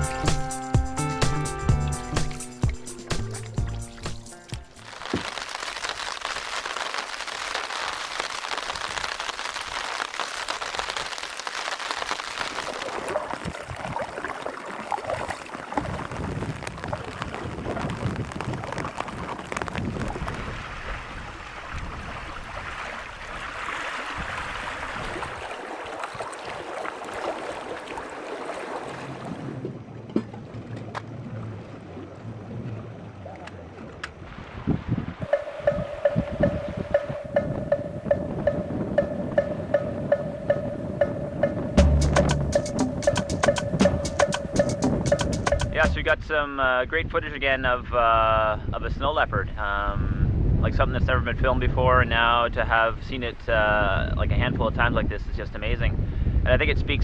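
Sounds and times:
light rain taps: 0:02.2 - 0:13.6
rain falling on water: 0:02.2 - 0:29.2, 0:35.2 - 0:46.1.

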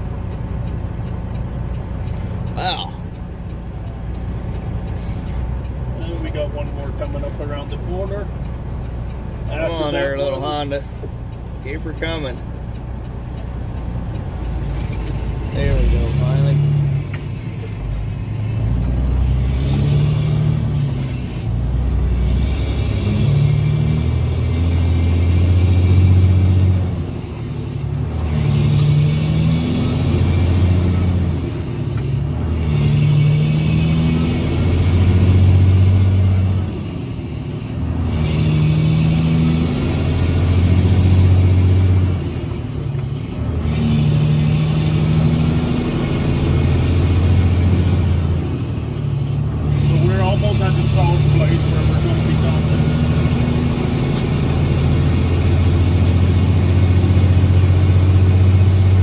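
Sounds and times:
truck diesel engine shifting gears: 0:00.0 - 0:59.0.

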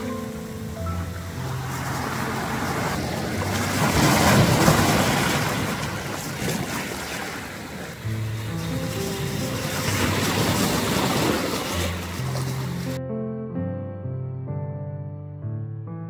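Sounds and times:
sea wave breaking on beach: 0:00.0 - 0:13.0.

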